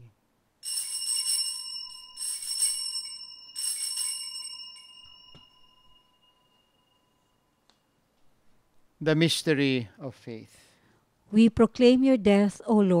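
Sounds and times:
altar bells jingling: 0.6 - 7.5.

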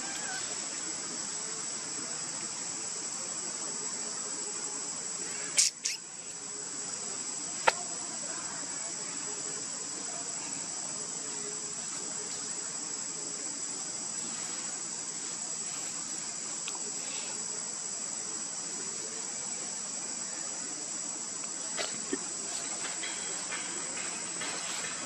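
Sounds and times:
insects droning: 0.0 - 25.0.

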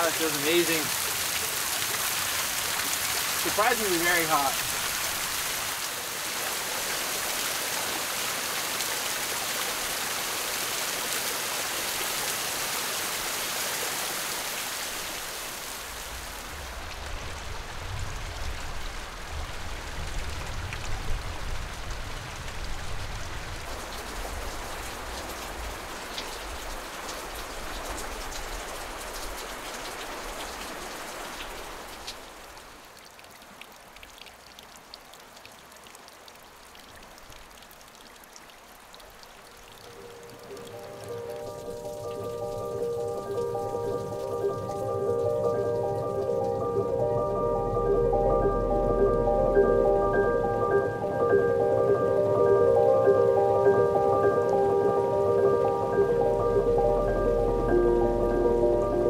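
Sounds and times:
water spattering on rocks: 0.0 - 5.8
low rumble: 45.8 - 52.4.

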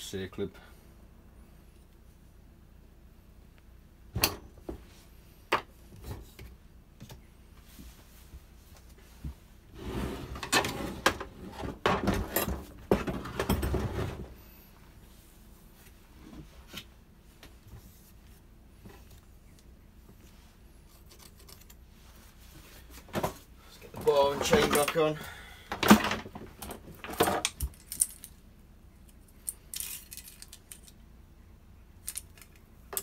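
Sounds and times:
metal parts and tools clattering: 25.8 - 28.4, 29.4 - 31.0, 32.0 - 33.0.

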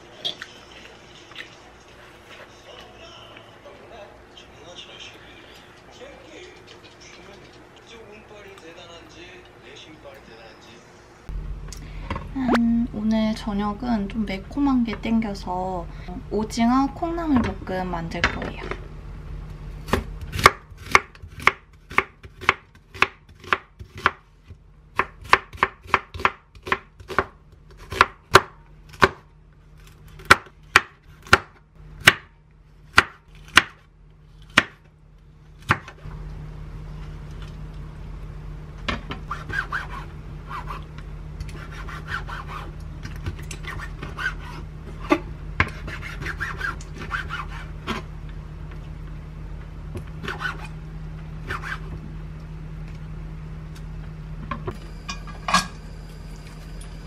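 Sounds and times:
steady low hum: 0.0 - 57.0
knife chopping on wooden board: 19.8 - 24.2, 25.0 - 29.2, 30.2 - 32.3, 32.9 - 33.8, 34.5 - 34.8.

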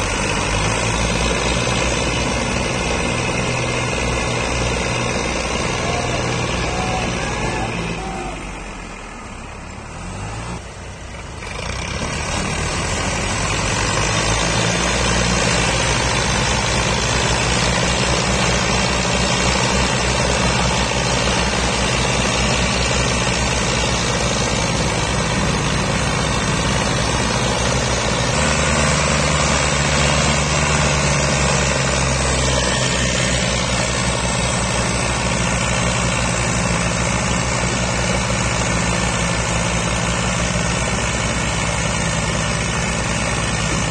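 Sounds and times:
diesel tractor engines under load: 0.0 - 43.9.

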